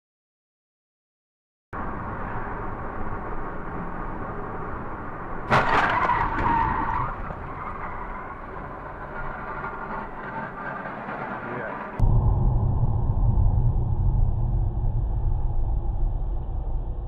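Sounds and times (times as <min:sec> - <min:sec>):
car road and engine noise: 0:01.8 - 0:12.1
sudden bang with clatter: 0:05.5 - 0:07.4
tyre squeal: 0:05.5 - 0:12.0.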